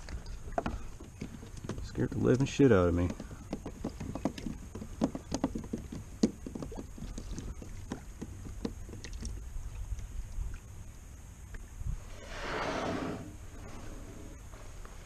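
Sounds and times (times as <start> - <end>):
water slapping kayak hull: 0.0 - 11.6.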